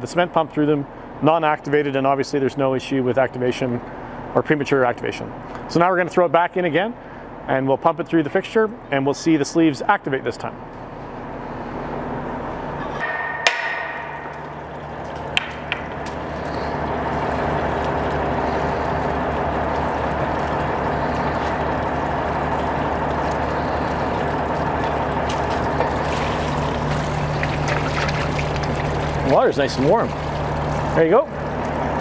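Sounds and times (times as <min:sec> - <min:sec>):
low hum: 0:10.8 - 0:29.3
sharp metal knocks: 0:13.0 - 0:16.4
water gushing from pipe: 0:14.6 - 0:32.0.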